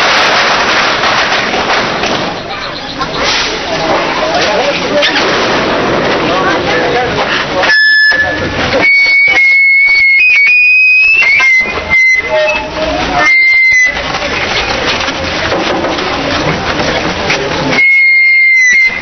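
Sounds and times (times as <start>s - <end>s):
loud crowd noise: 0.0s - 19.0s
high pipe playing held notes: 7.6s - 14.1s.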